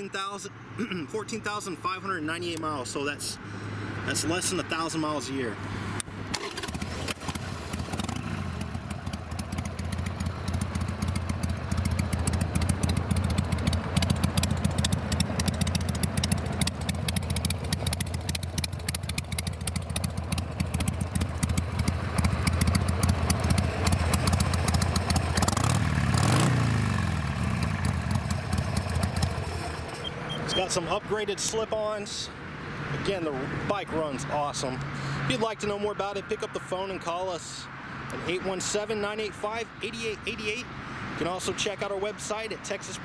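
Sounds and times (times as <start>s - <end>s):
motorcycle engine idling: 6.5s - 30.3s.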